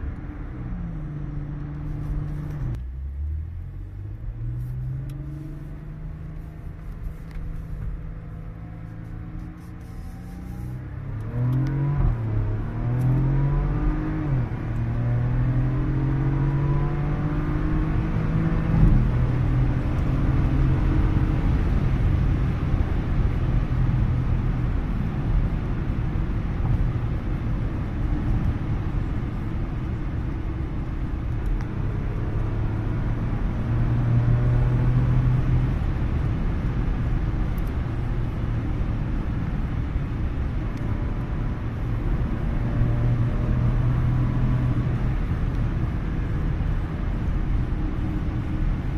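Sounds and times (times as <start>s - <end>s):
car engine from inside cabin: 0.0s - 48.9s.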